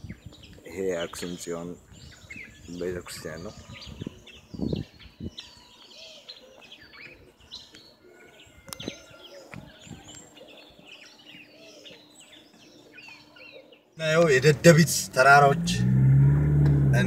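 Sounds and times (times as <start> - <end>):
small birds chirping: 0.0 - 15.7
low thump: 16.5 - 16.9.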